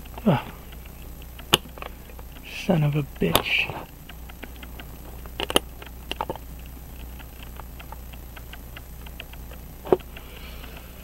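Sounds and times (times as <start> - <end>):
small metallic clicks and taps: 3.2 - 10.9.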